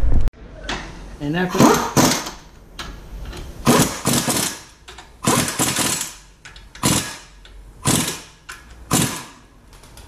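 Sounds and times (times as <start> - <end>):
power wrench rattling: 5.2 - 7.2, 7.8 - 9.4.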